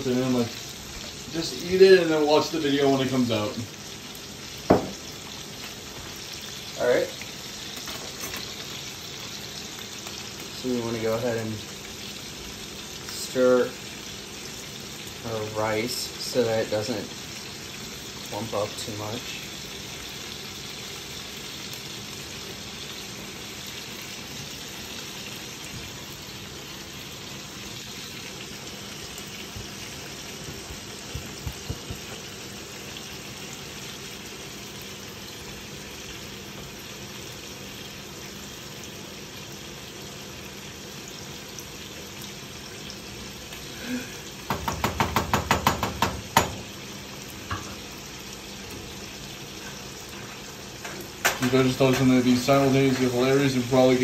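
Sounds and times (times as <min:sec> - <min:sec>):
chicken sizzling in a skillet: 0:00.0 - 0:54.0
rice bubbling in a saucepan: 0:00.0 - 0:54.0.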